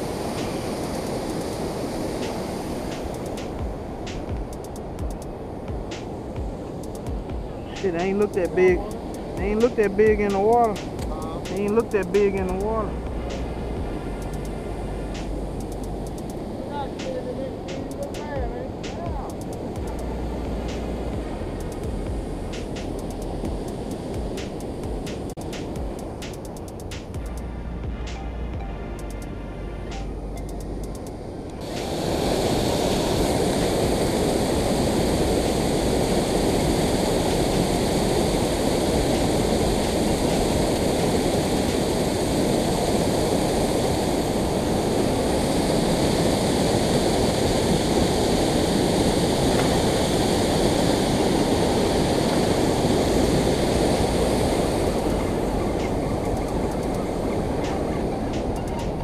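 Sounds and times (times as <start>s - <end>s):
water rushing over dam spillway: 0.0s - 13.5s, 16.2s - 26.3s, 31.6s - 59.0s.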